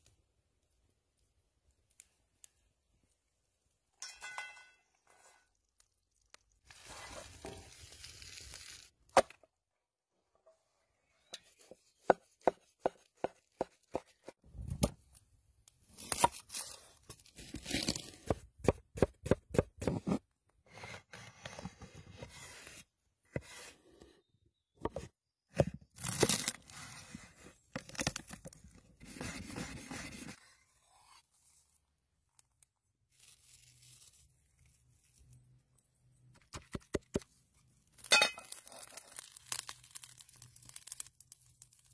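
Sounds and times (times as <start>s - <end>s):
knife chopping vegetables on wood: 12.0s - 14.3s, 18.2s - 20.1s
crunchy cutting and tearing: 26.0s - 26.8s, 38.4s - 41.9s.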